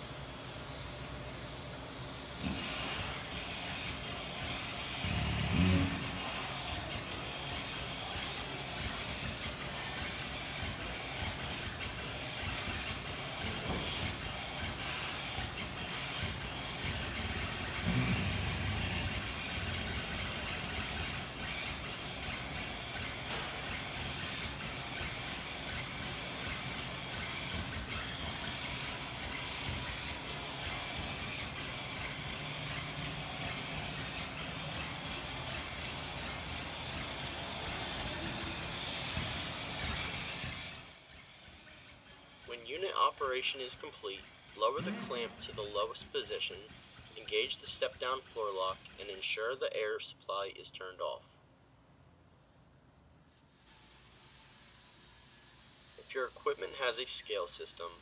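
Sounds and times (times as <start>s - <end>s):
hydraulic motor running with hiss: 0.0s - 42.5s, 53.2s - 58.0s.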